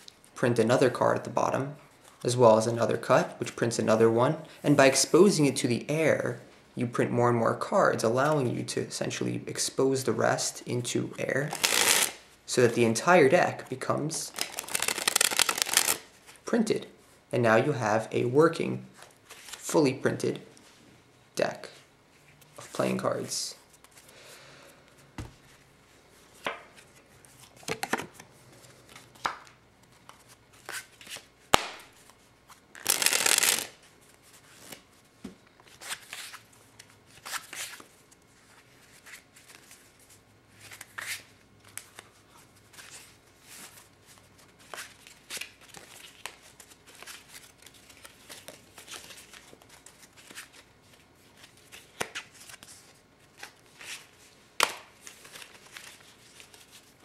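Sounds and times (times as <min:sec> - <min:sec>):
playing cards rustling: 0:11.5 - 0:12.2, 0:14.2 - 0:16.4, 0:26.4 - 0:35.0, 0:35.6 - 0:56.9
playing cards clicking: 0:11.6 - 0:12.2, 0:14.4 - 0:16.0, 0:32.8 - 0:33.7.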